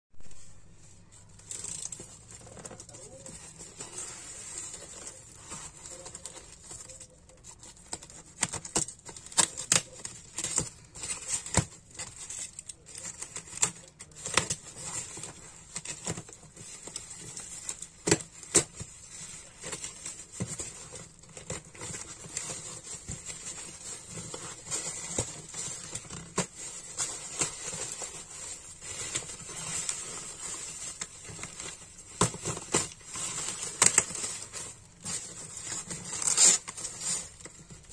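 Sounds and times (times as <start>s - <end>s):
plastic wrap crinkling: 0.2s - 37.9s
packing tape peeling and tearing: 21.2s - 37.5s.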